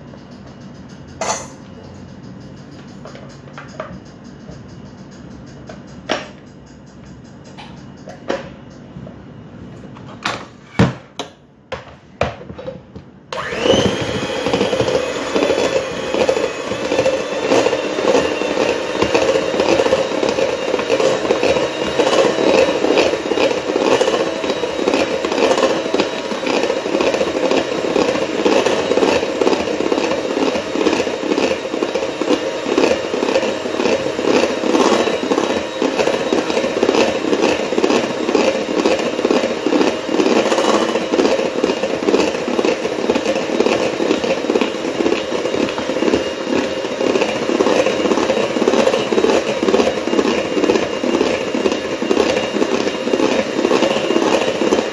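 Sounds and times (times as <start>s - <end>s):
electric mixer whipping frosting: 13.3s - 54.9s.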